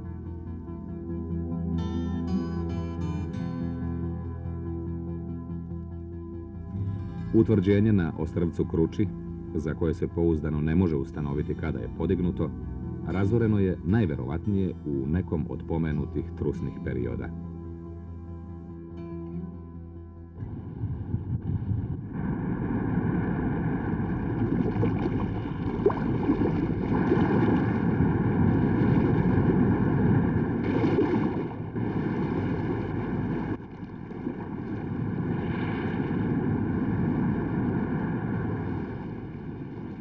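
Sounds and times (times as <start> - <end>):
waves surging on rocky shore: 22.2 - 40.0.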